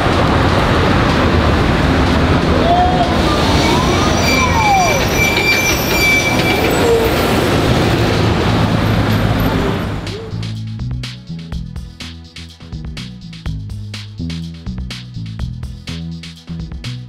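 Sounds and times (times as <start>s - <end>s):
music with a beat: 0.0s - 3.2s, 10.0s - 17.0s
traffic rumble: 0.0s - 17.0s
high squeal: 2.5s - 10.4s.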